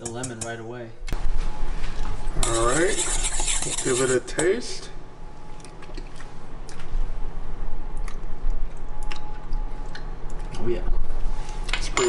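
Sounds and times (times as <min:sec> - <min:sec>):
spoon scraping metal bowl: 0:02.4 - 0:04.5.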